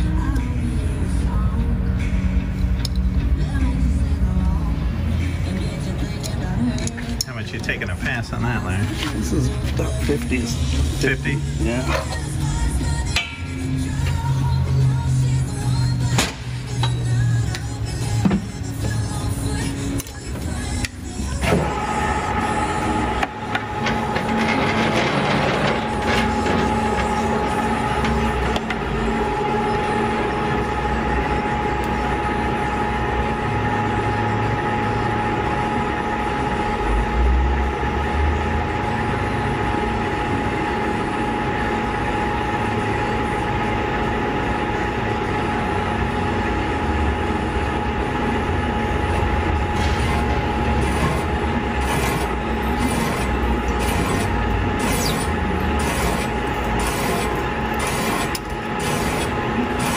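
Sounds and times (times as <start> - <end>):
boring machine whine and rumble: 0.0 - 59.9
rasping scrape: 49.8 - 59.9.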